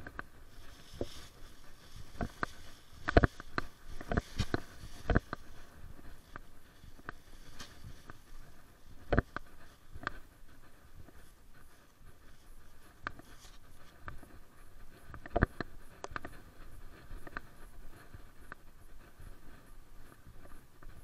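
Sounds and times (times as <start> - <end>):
sharp clicks and knocks: 0.0 - 10.2, 15.0 - 16.4
scratchy rustling: 0.0 - 21.0.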